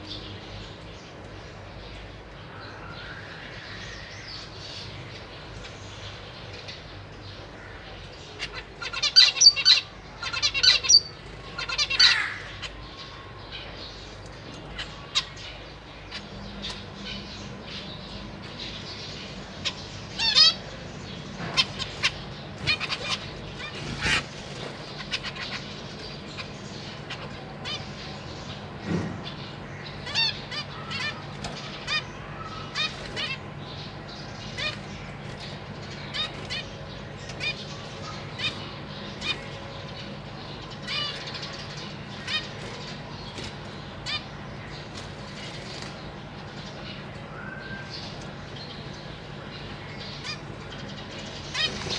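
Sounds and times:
finches calling: 0:00.0 - 0:51.9
wings fluttering: 0:22.0 - 0:25.6, 0:44.7 - 0:47.1, 0:51.5 - 0:51.9.

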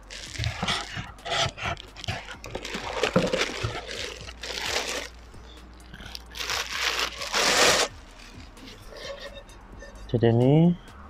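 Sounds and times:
cardboard box rustling: 0:00.0 - 0:05.2, 0:06.1 - 0:07.9
plastic wrapping crinkling: 0:00.0 - 0:09.2.

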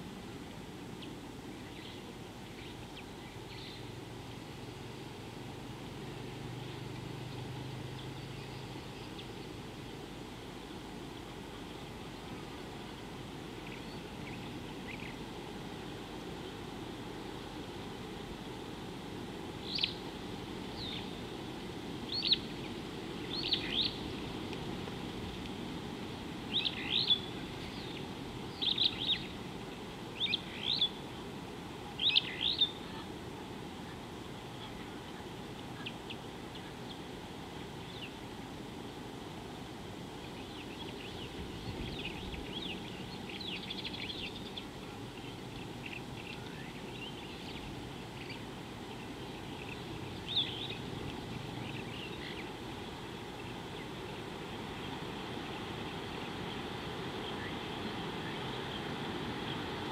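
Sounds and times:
low background hiss: 0:00.0 - 0:59.9
birds chirping: 0:06.6 - 0:09.8, 0:11.4 - 0:15.4, 0:19.6 - 0:25.0, 0:26.0 - 0:31.3, 0:31.9 - 0:33.1, 0:40.2 - 0:59.9.

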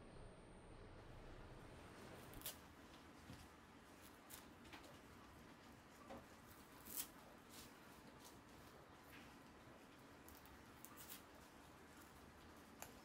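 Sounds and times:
dried fish strips tearing: 0:02.3 - 0:02.6, 0:06.7 - 0:08.4, 0:10.2 - 0:13.0.

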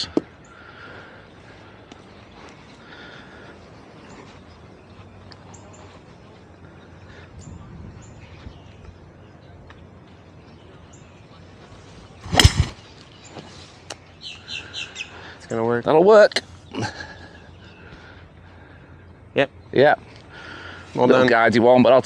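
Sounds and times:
faint bird chirps: 0:00.0 - 0:15.7
golf club striking ball: 0:12.2 - 0:12.8.

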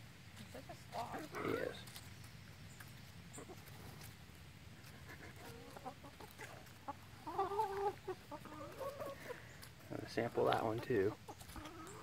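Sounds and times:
chickens clucking softly: 0:02.7 - 0:12.0.

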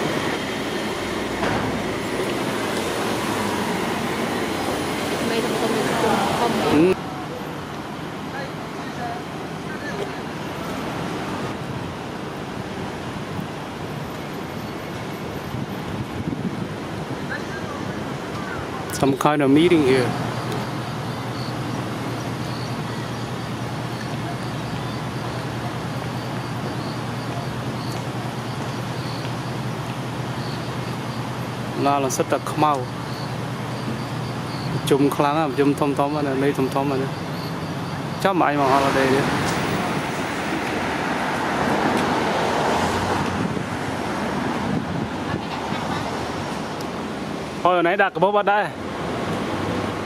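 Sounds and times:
city traffic hum: 0:00.0 - 0:50.0
wind buffeting microphone: 0:15.5 - 0:18.8, 0:43.0 - 0:47.0.

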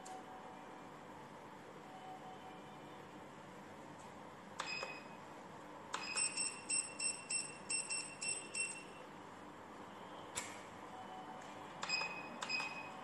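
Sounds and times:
pager buzzer beeps: 0:06.0 - 0:09.0, 0:11.0 - 0:13.0.

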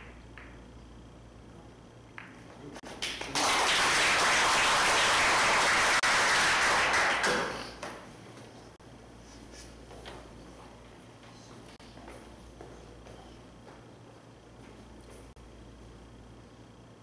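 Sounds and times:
billiard balls clicking: 0:00.0 - 0:00.7
audience applauding: 0:03.0 - 0:07.7.

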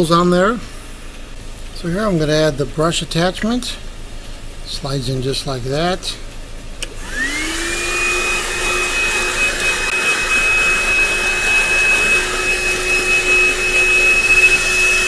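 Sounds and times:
handheld vacuum motor whine: 0:06.8 - 0:15.0
rushing air: 0:07.0 - 0:15.0.

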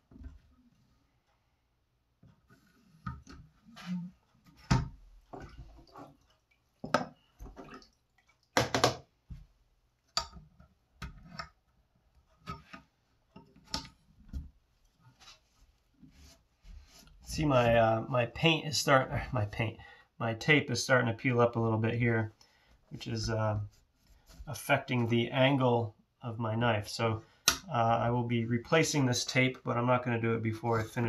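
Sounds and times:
water sloshing and dripping: 0:04.3 - 0:11.3.

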